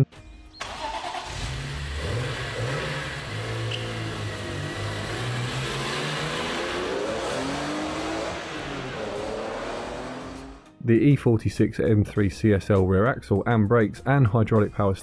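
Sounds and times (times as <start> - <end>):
car engine revving: 0.9 - 10.7.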